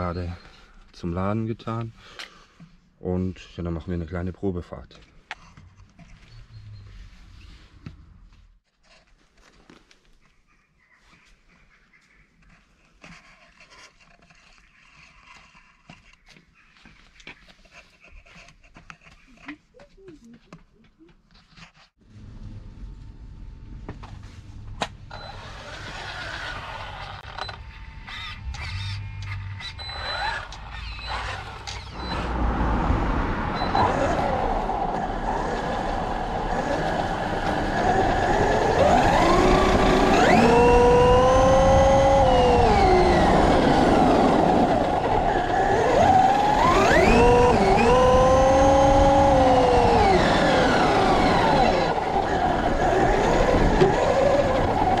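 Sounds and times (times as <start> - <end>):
toy truck driving noise: 25.1 - 55.0
electric motor whining: 25.2 - 55.0.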